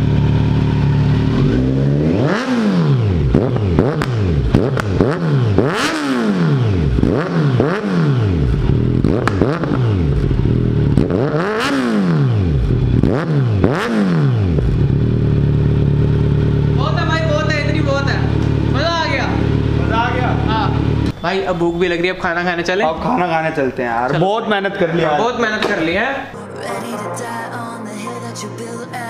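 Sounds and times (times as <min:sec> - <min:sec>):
motorcycle engine revving: 0:00.0 - 0:21.2.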